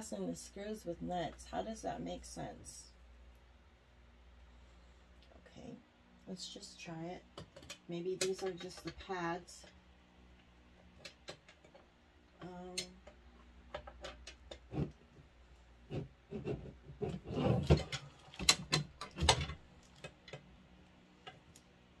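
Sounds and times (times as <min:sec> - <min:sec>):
parts knocking and clicking: 0:07.3 - 0:21.6.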